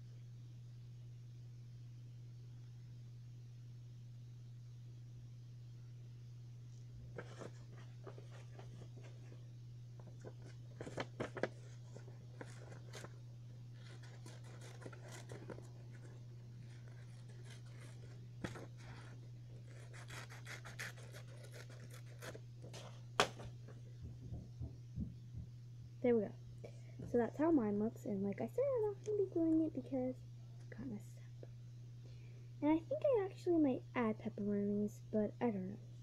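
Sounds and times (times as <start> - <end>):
steady low hum: 0.0 - 36.0
paper rustling: 7.1 - 9.4, 10.0 - 23.6
scissors snipping paper: 13.7 - 22.4.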